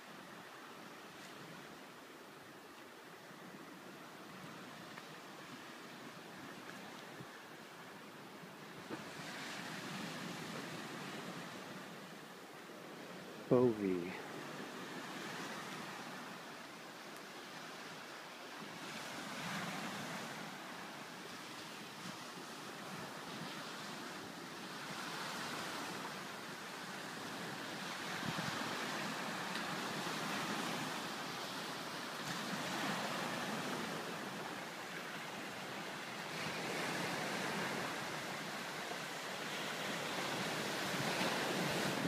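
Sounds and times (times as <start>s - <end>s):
waves breaking on pebble beach: 12.9s - 42.0s.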